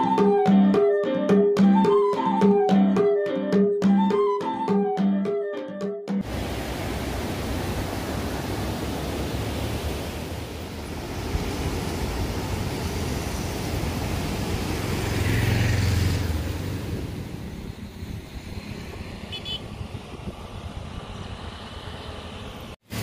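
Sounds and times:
traffic engines: 6.2s - 23.0s
vehicle passing: 11.5s - 23.0s.

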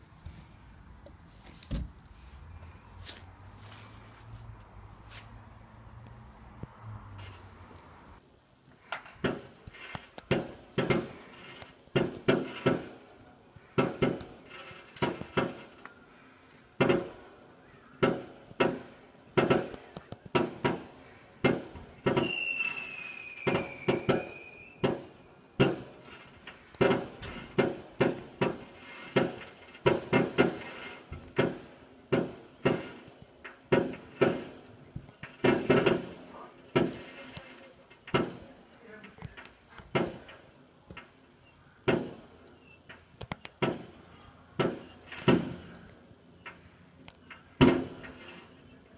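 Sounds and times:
fireworks bangs: 8.8s - 39.0s, 41.8s - 46.0s, 47.6s - 48.7s
firework whistle: 22.0s - 24.9s.

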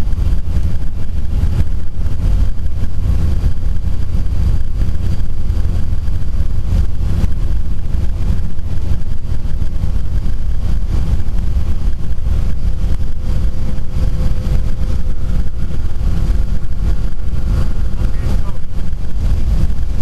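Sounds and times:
airplane engine drone: 0.0s - 20.0s.

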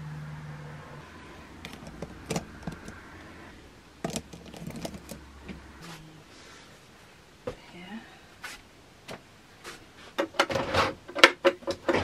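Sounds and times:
pens and pencils rattling in pot: 1.7s - 3.0s, 4.0s - 5.2s.

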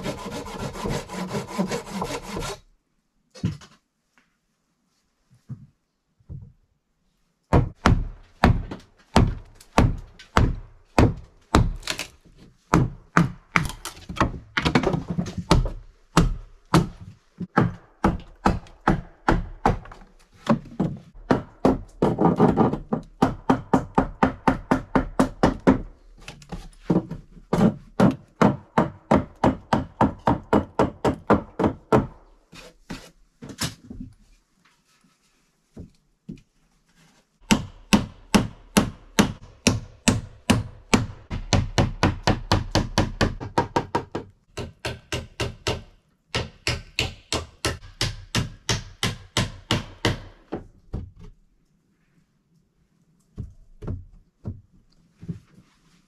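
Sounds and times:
hatchet chopping wood: 7.5s - 12.1s, 12.7s - 14.9s, 15.5s - 20.6s, 21.2s - 25.9s, 27.5s - 32.2s, 37.4s - 50.6s.

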